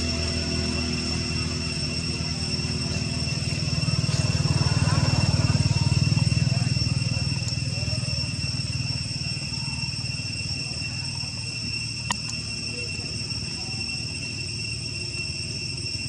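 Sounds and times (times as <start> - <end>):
low rumble: 0.0 - 15.7
insects droning: 0.0 - 16.0.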